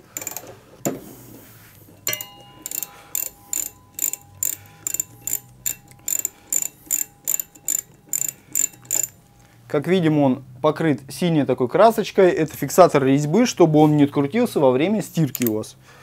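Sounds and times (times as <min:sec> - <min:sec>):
ratchet wrench clicking: 0:00.0 - 0:00.5, 0:01.9 - 0:09.4, 0:15.3 - 0:15.6.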